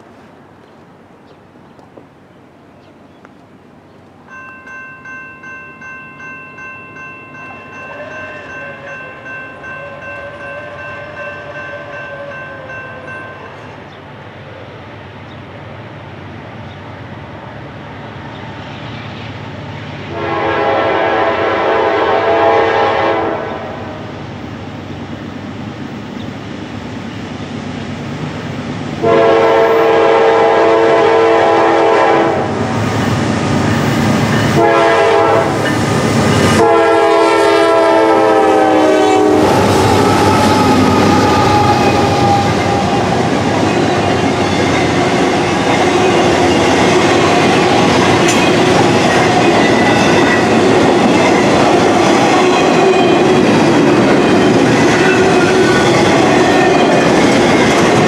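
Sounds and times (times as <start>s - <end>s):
train wheels on rails: 2.8s - 58.0s
locomotive air horn blasts: 7.9s - 13.1s, 20.1s - 24.0s, 29.0s - 32.6s, 34.5s - 35.6s, 36.4s - 43.1s
clickety-clack over rail joints: 35.5s - 36.6s, 41.5s - 58.0s.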